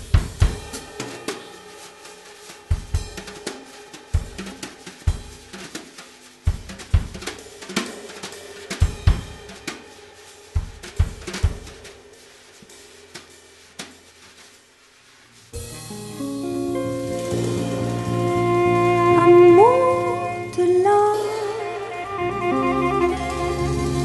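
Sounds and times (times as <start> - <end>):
drum kit playing: 0.0 - 24.0
band sustained notes: 15.6 - 24.0.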